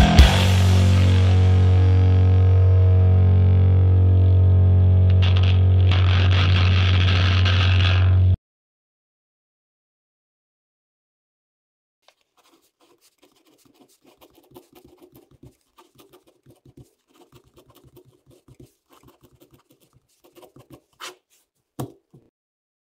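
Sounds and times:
pen scratching on paper: 5.3 - 8.1, 12.1 - 22.0.

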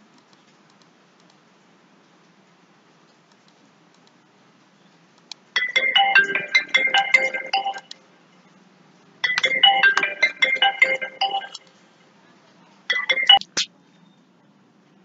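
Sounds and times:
phone ringtone melody: 5.6 - 8.0, 9.2 - 11.7, 12.9 - 13.6.

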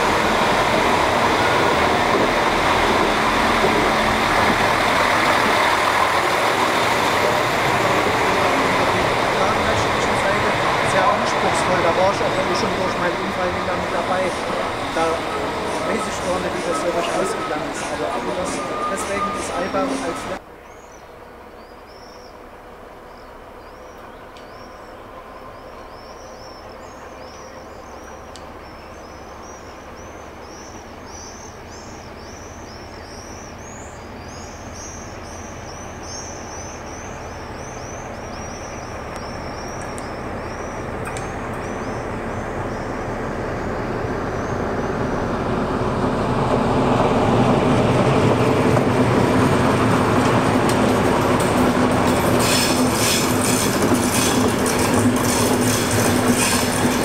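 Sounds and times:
birds singing: 0.0 - 45.4
diesel locomotive engine drone: 0.0 - 57.0
wheels clattering and squealing on rails: 0.0 - 57.0.

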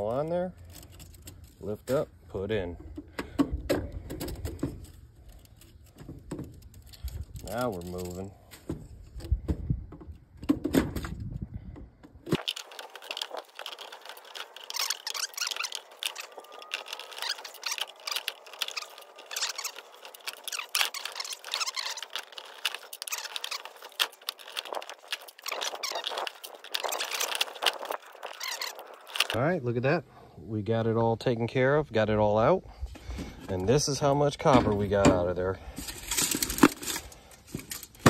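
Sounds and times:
metallic clinks and rattles: 12.4 - 29.4.

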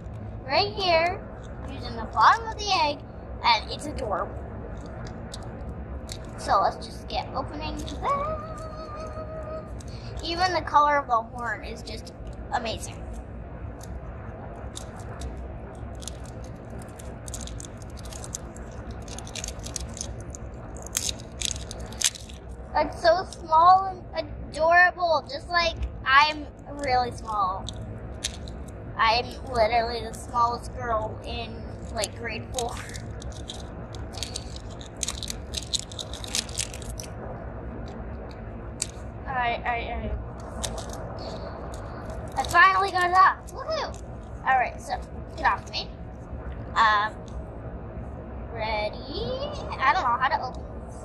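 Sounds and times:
low rumble inside car: 0.0 - 51.0
plastic toy crackly clicks: 16.0 - 22.4, 31.8 - 37.1, 40.4 - 44.0.

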